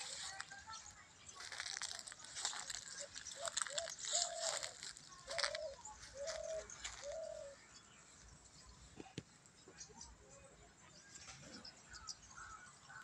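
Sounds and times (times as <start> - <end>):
bird calling: 1.4 - 7.6.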